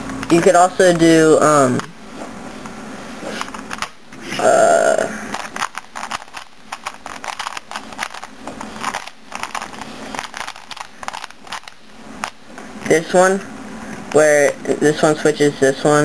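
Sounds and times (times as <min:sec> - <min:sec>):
person humming: 0:04.2 - 0:05.3
puzzle cube clicking as turned: 0:05.3 - 0:12.4.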